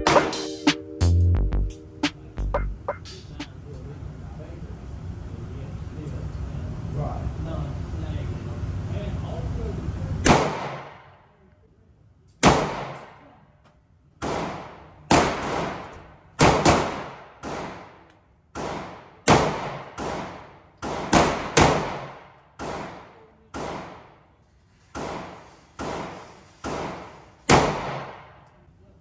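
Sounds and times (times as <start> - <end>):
gunshots ringing off concrete walls: 10.2 - 11.2, 12.4 - 13.2, 14.2 - 24.3, 24.9 - 28.5.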